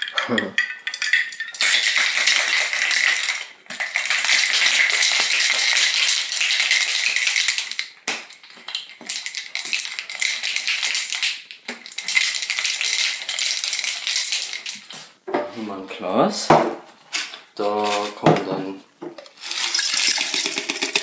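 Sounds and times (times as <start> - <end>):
ice rattling in cocktail shaker: 0.0 - 14.9, 19.3 - 21.0.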